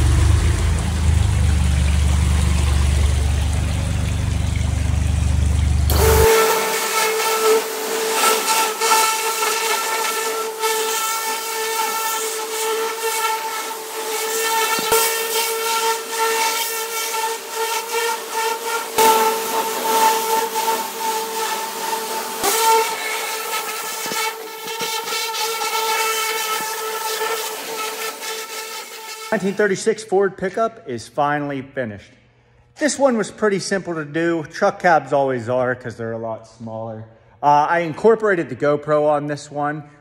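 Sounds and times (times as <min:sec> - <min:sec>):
low steady hum: 0:00.0 - 0:06.0
pressure washer spraying metal: 0:05.9 - 0:29.6.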